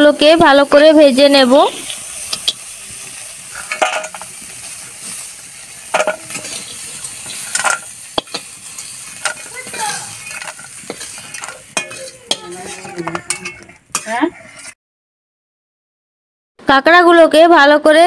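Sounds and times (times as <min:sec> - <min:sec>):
crab frying in hot oil: 0:00.0 - 0:14.8
stirring scraping against pan: 0:00.5 - 0:14.8.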